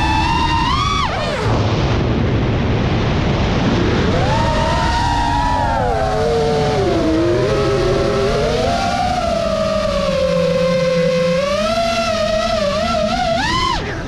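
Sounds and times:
quadcopter motors whining: 0:00.0 - 0:01.6, 0:04.1 - 0:14.0
rush of air: 0:00.0 - 0:08.7.

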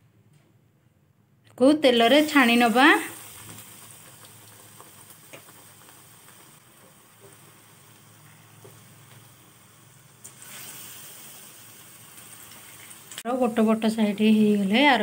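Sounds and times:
food deep-frying in oil: 0:01.8 - 0:15.0
oil popping: 0:03.2 - 0:07.5.

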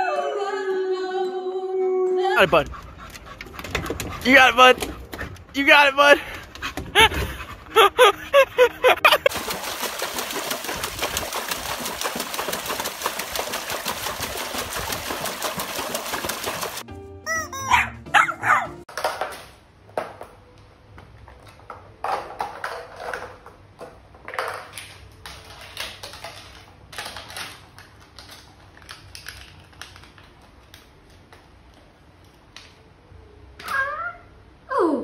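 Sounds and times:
puppy yapping: 0:17.3 - 0:18.8.

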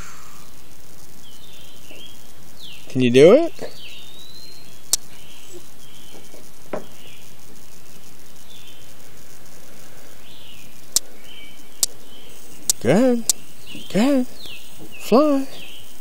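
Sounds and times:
insects and birds chirping: 0:00.0 - 0:16.0
sharp clicks: 0:12.6 - 0:15.0.

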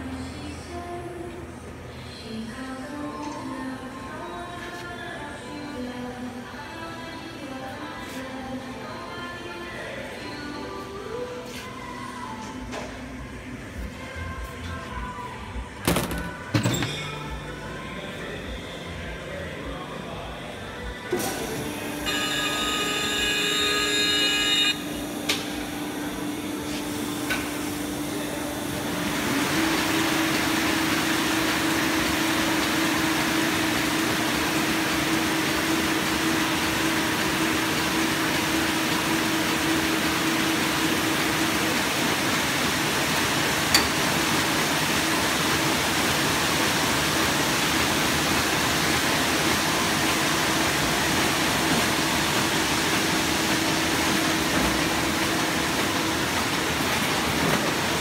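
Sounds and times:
machine running with low hum: 0:17.4 - 0:58.0
tone: 0:21.8 - 0:25.4.

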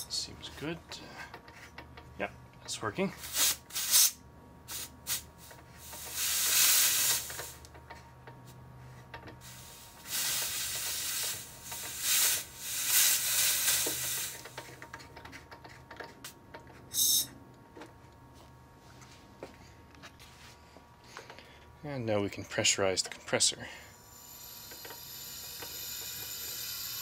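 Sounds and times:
compressed air hissing: 0:03.2 - 0:07.6, 0:09.4 - 0:14.6, 0:23.9 - 0:27.0.

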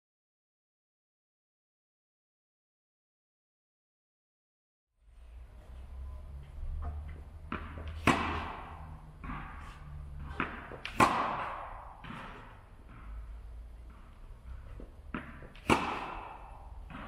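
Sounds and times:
ball bouncing on court: 0:06.7 - 0:17.0
racket hitting tennis ball: 0:06.8 - 0:17.0.

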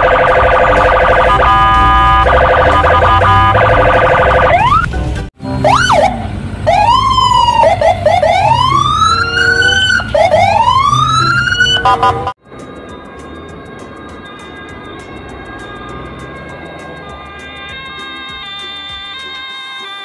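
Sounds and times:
fast-pulsing siren tone: 0:00.0 - 0:04.9, 0:05.6 - 0:12.4
siren sweeping up and down: 0:00.0 - 0:12.4.

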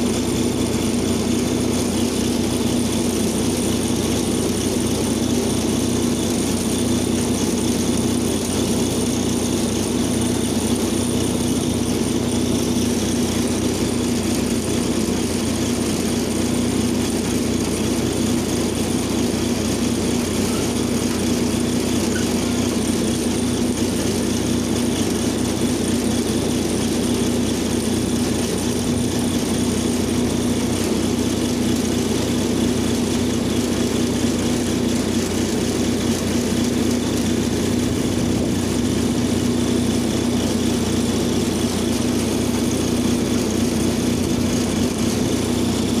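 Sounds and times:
diesel excavator engine running: 0:00.0 - 0:46.0.

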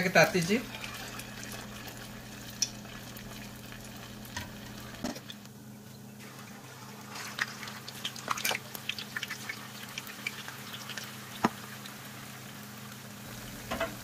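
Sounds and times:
oil sizzling in a wok: 0:00.0 - 0:14.0
oil popping: 0:00.7 - 0:05.6, 0:07.2 - 0:11.9.

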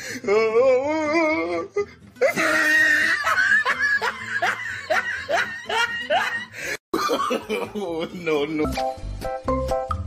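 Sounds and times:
person laughing: 0:02.2 - 0:08.4.

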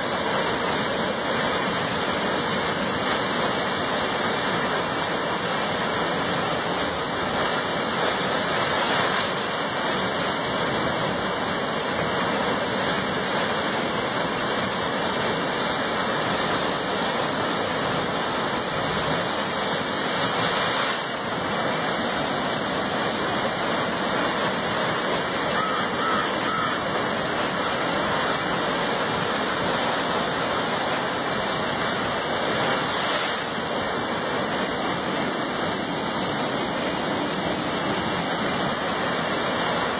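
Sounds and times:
ocean surf rushing into rocks: 0:00.0 - 0:39.9.

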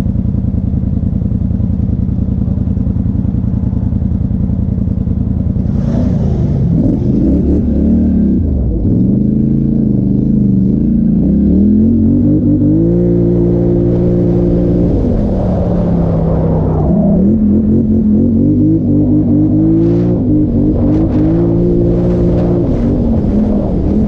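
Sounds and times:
atv engine revving: 0:05.6 - 0:24.0.

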